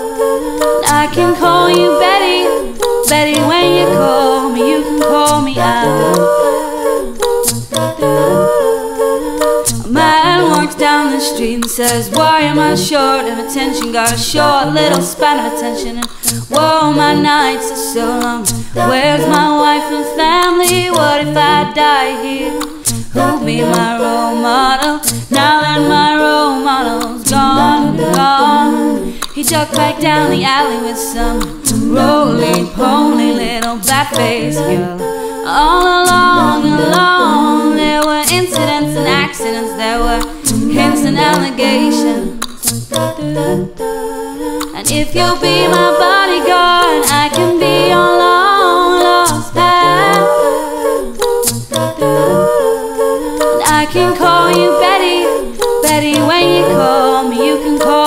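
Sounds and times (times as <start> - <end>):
layered woman's vocal loops: 0.0 - 58.0
sharp percussive clicks: 2.8 - 8.6, 9.3 - 13.0, 13.8 - 17.4, 18.0 - 21.8, 22.5 - 24.0, 24.7 - 26.2, 26.9 - 28.5, 29.1 - 30.6, 31.2 - 34.8, 35.7 - 43.2, 44.5 - 52.6, 53.2 - 56.9.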